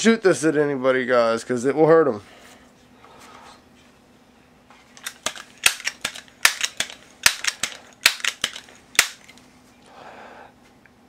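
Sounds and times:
air pistol pump clacks: 0:05.0 - 0:09.4.

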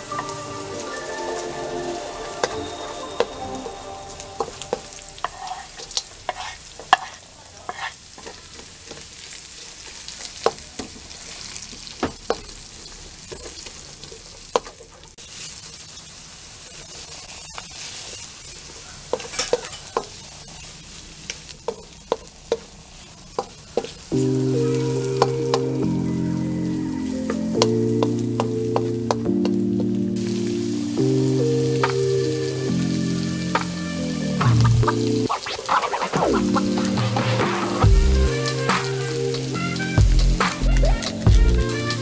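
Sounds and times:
music: 0:00.0 - 0:05.6, 0:24.1 - 0:42.0
food sizzling in oil: 0:00.0 - 0:42.0
wooden spatula scraping wok: 0:04.4 - 0:09.1, 0:34.4 - 0:42.0.

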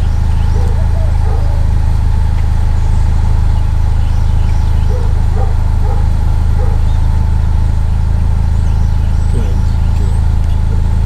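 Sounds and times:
vehicle engine idling: 0:00.0 - 0:11.0
dog barking: 0:00.5 - 0:01.7, 0:04.8 - 0:07.0.

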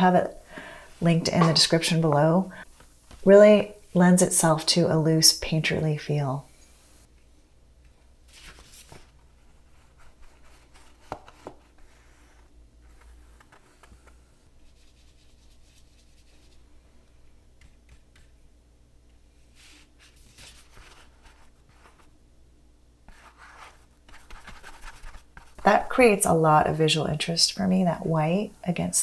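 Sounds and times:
low steady hum: 0:00.0 - 0:29.0
paintbrush brushing on paper: 0:14.6 - 0:16.7.

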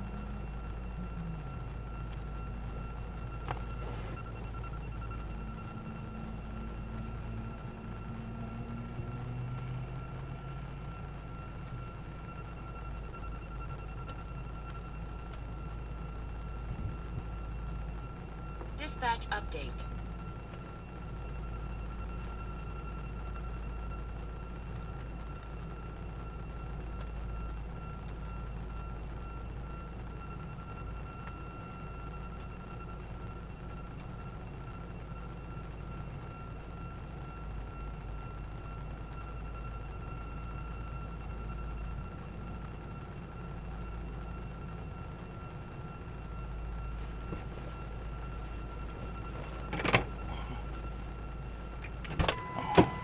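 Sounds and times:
vehicle engine idling: 0:00.0 - 0:33.3
high-pitched whine: 0:00.0 - 0:53.0.

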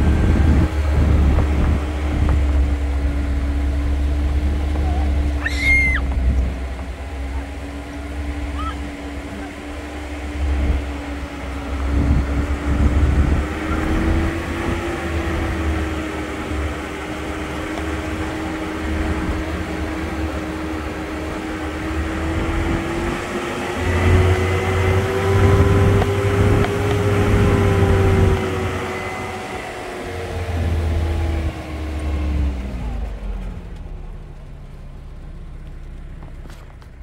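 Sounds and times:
low rumble: 0:00.0 - 0:21.0
engine droning: 0:00.0 - 0:37.0.

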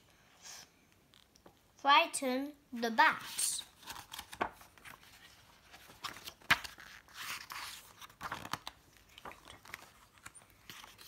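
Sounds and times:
book pages flipping: 0:03.2 - 0:11.0.

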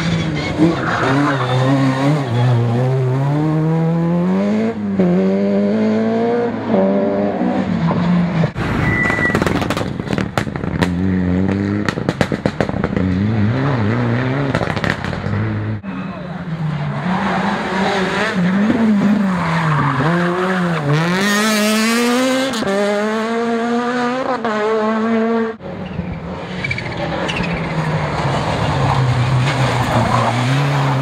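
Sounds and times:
rally car engines revving: 0:00.0 - 0:31.0
exhaust pops and bangs: 0:09.3 - 0:13.3, 0:14.5 - 0:15.4.

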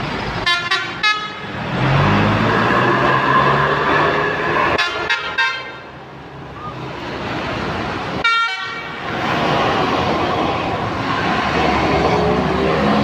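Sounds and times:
traffic noise: 0:00.0 - 0:13.0
multi-tone bus horn: 0:00.4 - 0:01.6, 0:04.7 - 0:06.0, 0:08.2 - 0:09.1.

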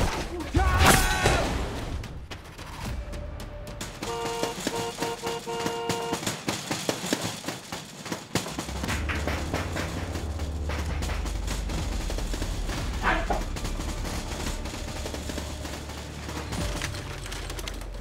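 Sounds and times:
sharp percussive hits: 0:03.7 - 0:16.9.

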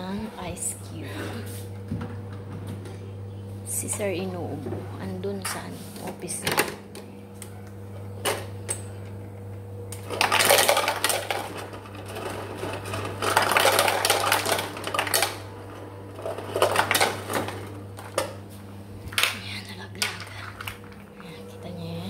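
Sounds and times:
ice cubes clattering into cup: 0:10.1 - 0:15.4, 0:16.2 - 0:17.6.

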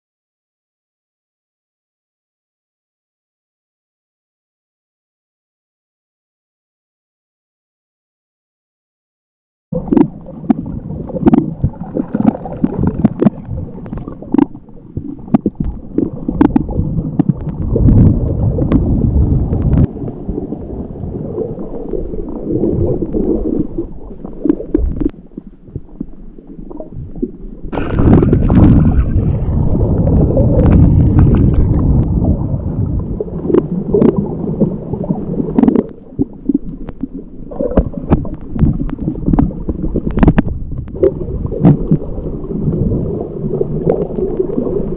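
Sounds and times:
underwater rumble and gurgling: 0:09.8 - 0:44.9.

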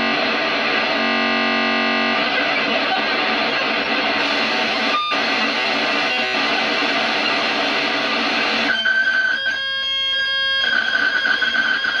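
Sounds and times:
harsh buzzy digital noise: 0:00.0 - 0:12.0.

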